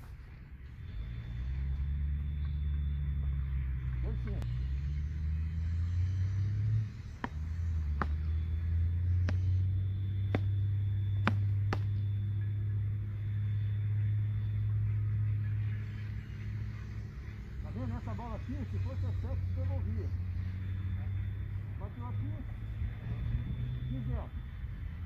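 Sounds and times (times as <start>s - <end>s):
steady low rumble: 0.0s - 25.0s
paddles striking ball: 7.2s - 8.4s, 11.2s - 12.0s.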